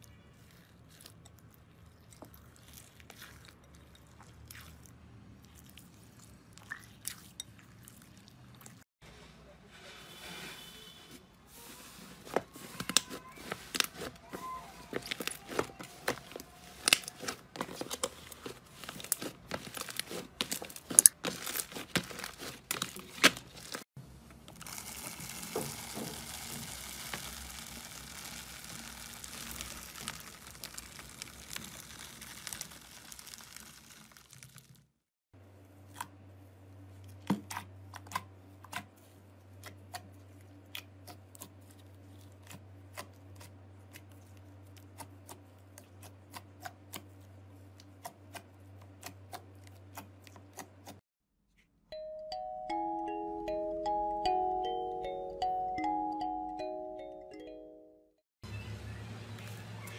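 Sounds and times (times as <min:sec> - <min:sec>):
crunchy crackle of bead slime: 0:00.0 - 0:07.3, 0:12.6 - 0:35.0.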